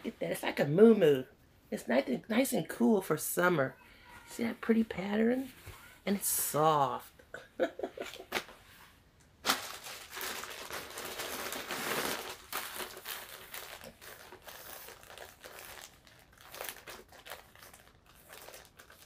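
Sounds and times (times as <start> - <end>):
plastic bags crinkling: 9.3 - 19.0.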